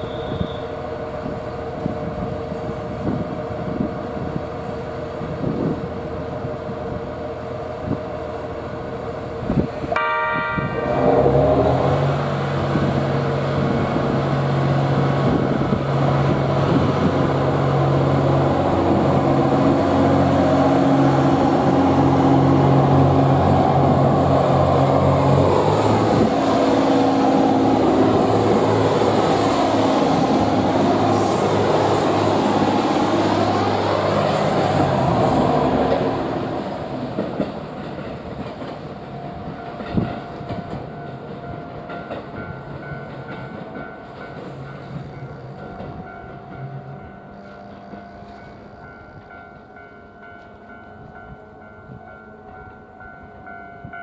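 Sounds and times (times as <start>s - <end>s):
train horn blast: 0.0s - 0.8s, 9.9s - 13.0s
diesel train engine: 0.0s - 54.0s.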